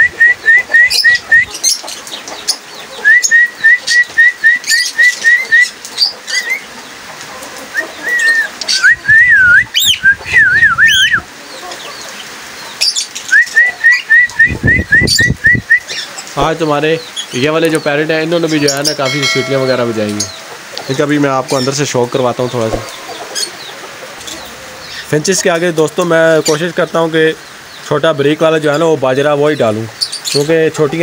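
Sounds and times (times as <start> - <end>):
cockatiel whistling: 0.0 - 1.5, 3.0 - 5.8, 7.8 - 11.2, 13.3 - 15.9
small cage birds chirping: 0.0 - 31.0.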